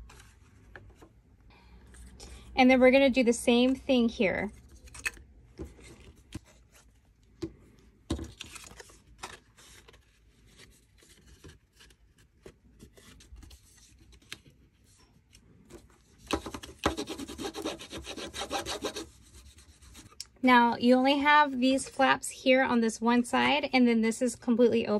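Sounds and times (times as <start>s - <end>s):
cardstock rustling and tapping: 15.7s - 17.1s.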